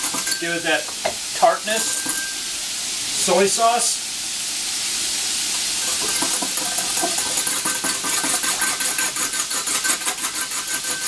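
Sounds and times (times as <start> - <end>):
deep-frying oil hissing: 0.0 - 11.0
whisk clinking in ceramic bowl: 5.9 - 11.0.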